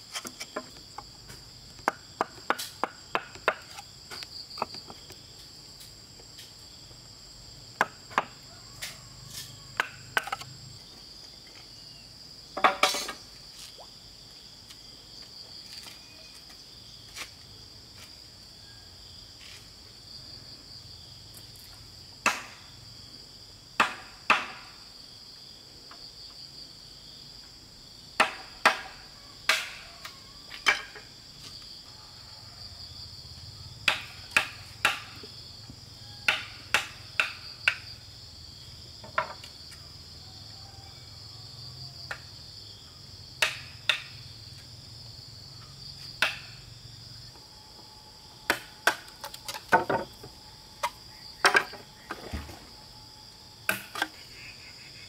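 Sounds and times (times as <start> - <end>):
insect trill: 0.0 - 55.0
chisel knocking into bamboo: 23.8 - 24.6, 28.2 - 29.8, 36.3 - 37.8, 46.2 - 46.4.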